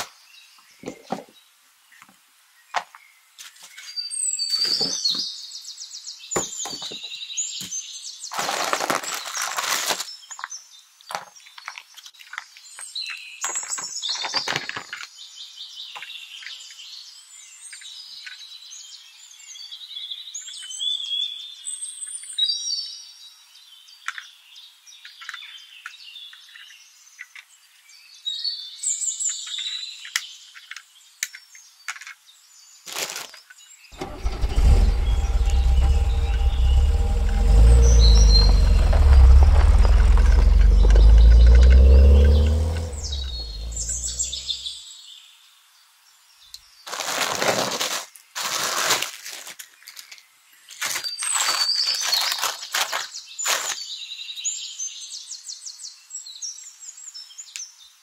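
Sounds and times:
plastic packaging crinkling: 0:08.3 - 0:10.4, 0:32.8 - 0:33.5, 0:46.9 - 0:53.8.

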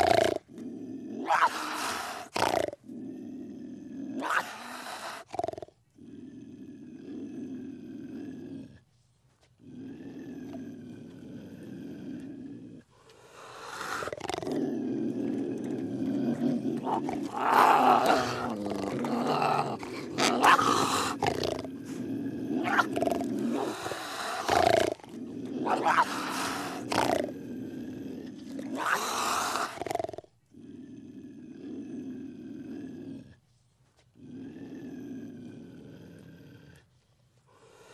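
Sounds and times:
harsh animal cries: 0:16.8 - 0:21.3, 0:25.6 - 0:27.0, 0:28.8 - 0:29.8.

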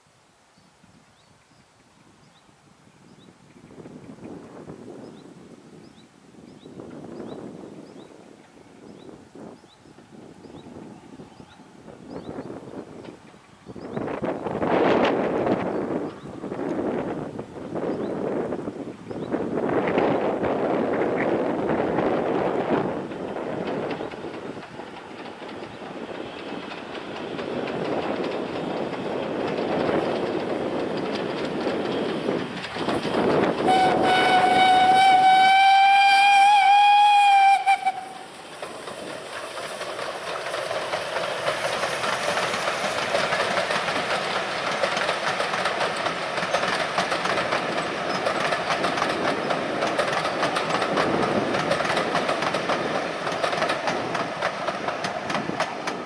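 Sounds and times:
steam locomotive working: 0:06.6 - 0:56.0
train coaches rumbling past: 0:06.6 - 0:56.0
wheels clicking on rails: 0:12.2 - 0:56.0
steam whistle long note: 0:33.6 - 0:38.3.

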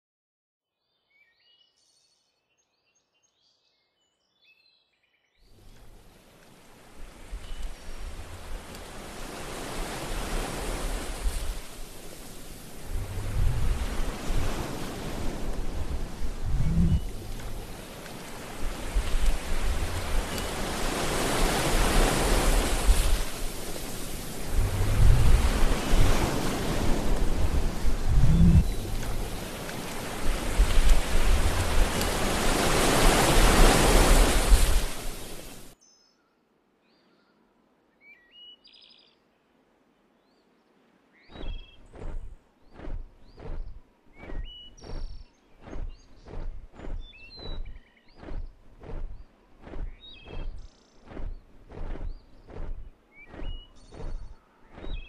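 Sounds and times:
low rumble of wind: 0:05.6 - 0:35.8, 0:41.2 - 0:55.0
sea waves washing in: 0:05.6 - 0:35.8, 0:41.3 - 0:55.0
steady rushing noise: 0:07.1 - 0:35.8
faint high chirps and whistles: 0:07.3 - 0:08.0, 0:12.6 - 0:20.8, 0:35.7 - 0:39.2, 0:41.1 - 0:55.0.

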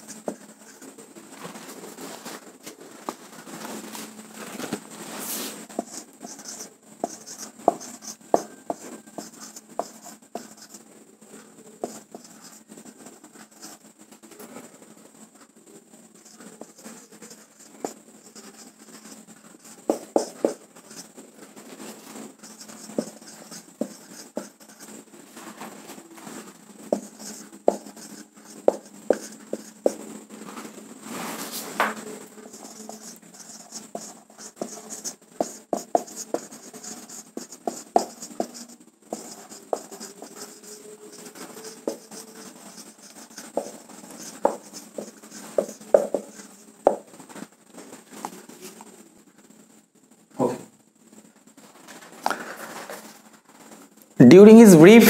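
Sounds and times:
marker writing on whiteboard: 0:00.0 - 0:01.0, 0:05.5 - 0:10.8, 0:11.4 - 0:13.8, 0:16.2 - 0:25.0, 0:26.4 - 0:30.1, 0:31.7 - 0:47.2.

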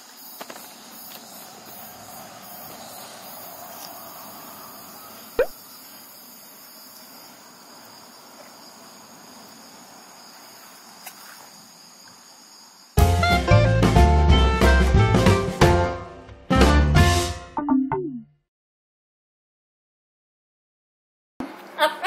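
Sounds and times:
insects chirring: 0:00.0 - 0:13.0.

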